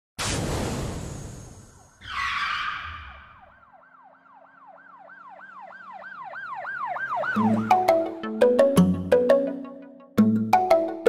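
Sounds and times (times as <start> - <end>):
siren yelping: 2.0 - 8.2.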